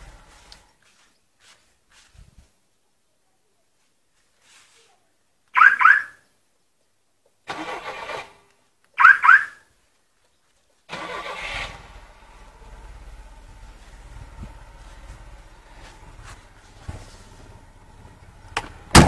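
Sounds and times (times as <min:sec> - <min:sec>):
car engine idling: 0:00.0 - 0:00.8, 0:10.9 - 0:19.0
car alarm siren chirps: 0:05.6 - 0:06.2, 0:09.0 - 0:09.6
starter motor cranking: 0:07.5 - 0:08.4, 0:10.9 - 0:13.7.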